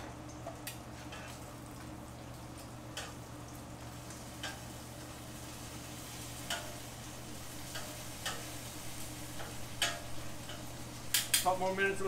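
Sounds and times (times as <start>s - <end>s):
bacon sizzling on griddle: 0.0s - 12.0s
metal tongs tapping griddle: 2.9s - 3.2s, 4.1s - 4.7s, 6.4s - 6.9s, 7.6s - 8.6s, 9.3s - 11.6s.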